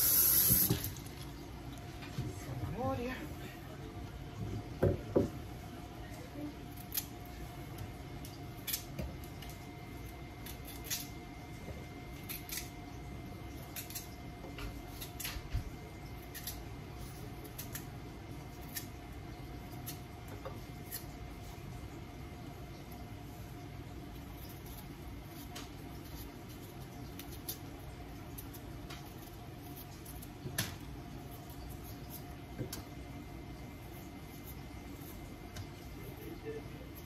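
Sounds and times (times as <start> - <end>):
faint steady hum: 0.0 - 37.0.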